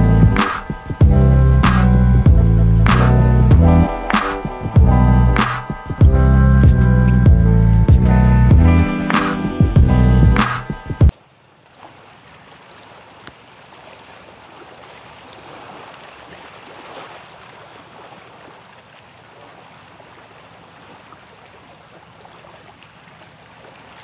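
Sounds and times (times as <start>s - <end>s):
choppy sea water lapping: 10.7s - 24.0s.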